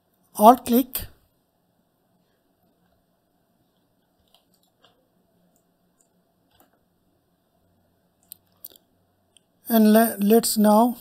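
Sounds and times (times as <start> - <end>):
computer mouse and keyboard clicks: 3.7 - 6.8.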